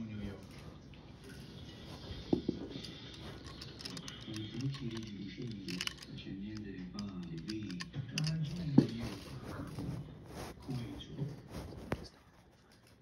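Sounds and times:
handling clicks and taps: 0:02.4 - 0:09.2
muffled voice talking: 0:03.8 - 0:12.1.

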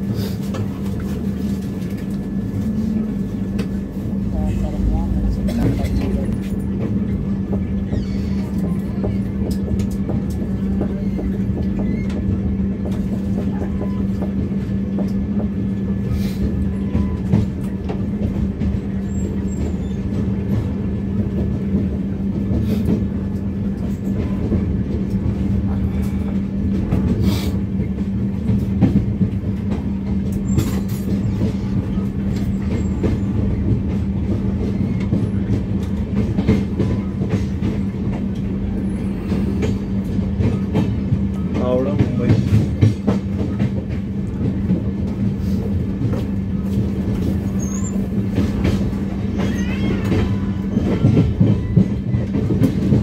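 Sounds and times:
train rumbling: 0:00.0 - 0:53.0.

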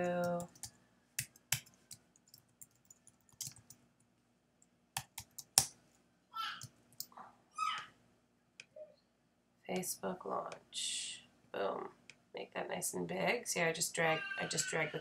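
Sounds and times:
keyboard typing clicks: 0:00.2 - 0:03.8.

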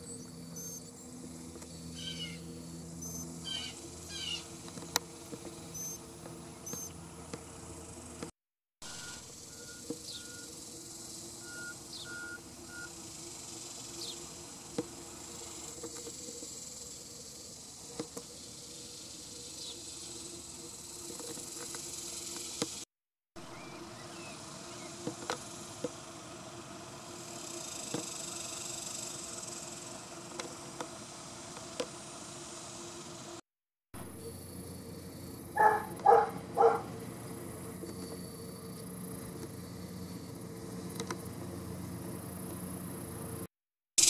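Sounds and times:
insects droning: 0:00.0 - 0:22.8, 0:23.4 - 0:33.4, 0:34.0 - 0:43.5.

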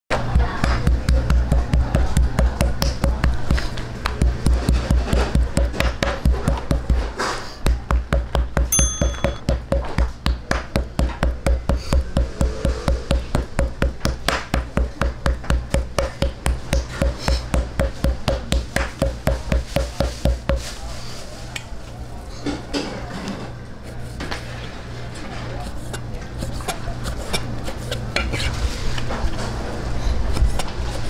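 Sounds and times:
knife chopping on plastic board: 0:00.3 - 0:08.7, 0:09.4 - 0:20.6.

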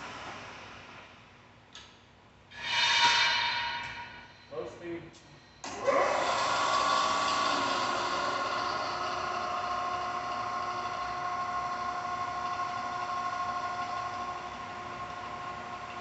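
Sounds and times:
milling machine motor whining: 0:05.6 - 0:16.0.

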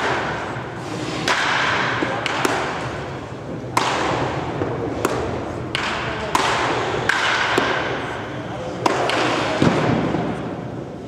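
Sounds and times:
baseballs smacking into mitt: 0:03.7 - 0:07.9.

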